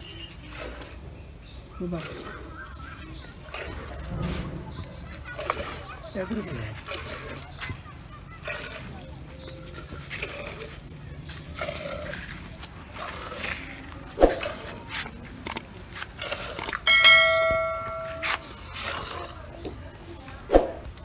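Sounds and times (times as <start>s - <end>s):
cricket chirping: 0.0s - 21.0s
sharp click: 15.4s - 15.7s
ringing chime: 16.7s - 18.6s.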